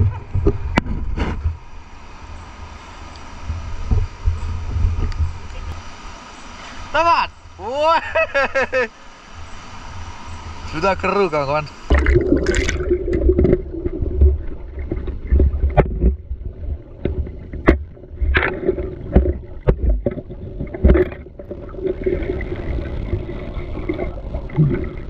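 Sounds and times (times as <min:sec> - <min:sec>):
river water churning and splashing: 0:11.0 - 0:25.0.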